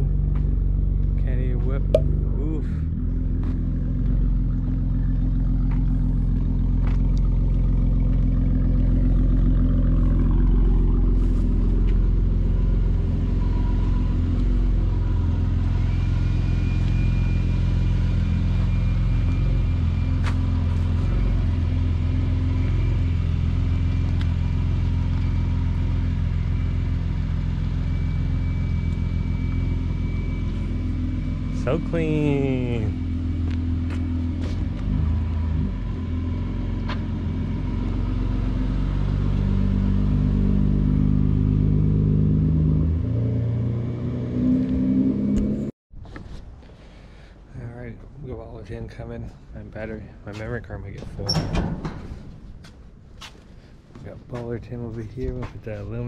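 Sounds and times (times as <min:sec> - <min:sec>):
car engine idling: 0:00.0 - 0:38.2.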